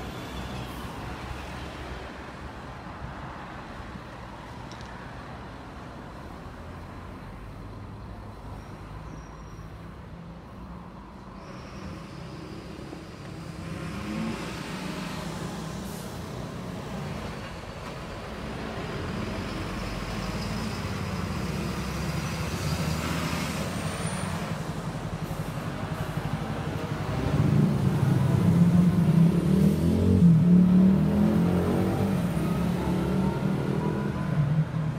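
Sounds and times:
road traffic rumble: 0.0 - 34.9
heavy vehicle engine: 10.4 - 34.9.

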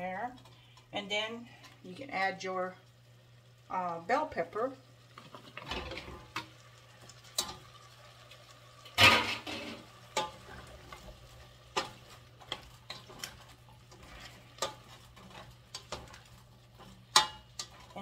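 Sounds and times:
spoon stirring food in a pot: 9.0 - 18.0
spoon knocking and scraping pot: 11.7 - 18.0.

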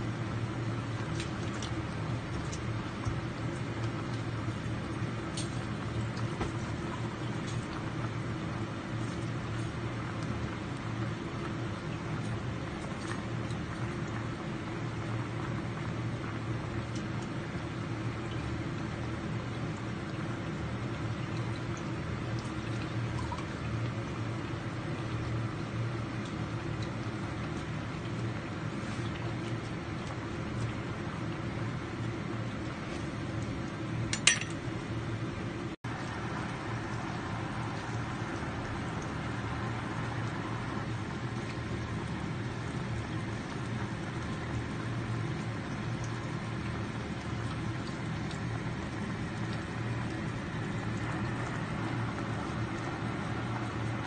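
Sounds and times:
pot simmering and bubbling: 0.0 - 54.0
steady low hum: 0.0 - 54.0.

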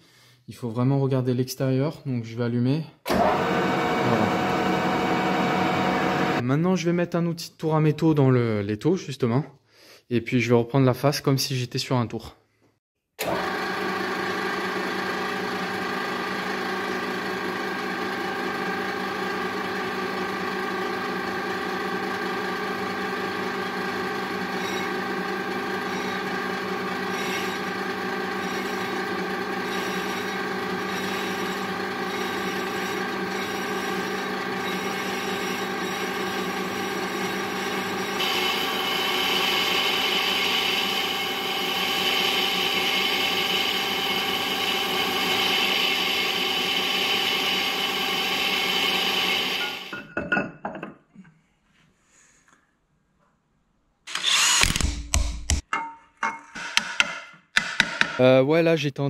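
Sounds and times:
milling machine motor whine: 3.1 - 6.4, 13.2 - 50.0
cutting tool hissing on metal: 29.6 - 49.8, 54.1 - 54.7.

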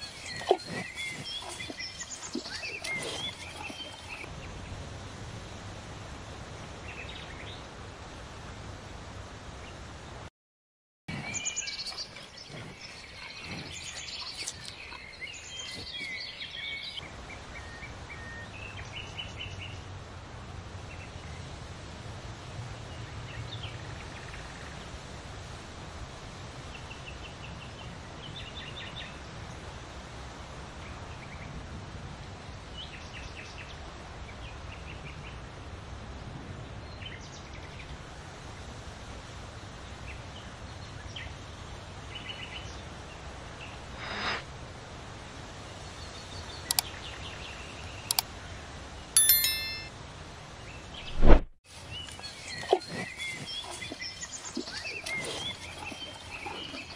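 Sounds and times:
songbirds chirping: 0.0 - 4.8, 11.1 - 19.8
steady low background noise: 4.0 - 10.3.

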